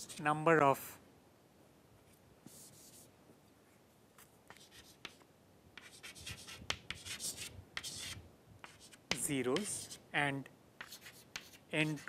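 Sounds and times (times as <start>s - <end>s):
chalk scratching on chalkboard: 2.5s - 3.1s, 4.5s - 5.2s, 5.8s - 10.0s, 10.8s - 12.0s.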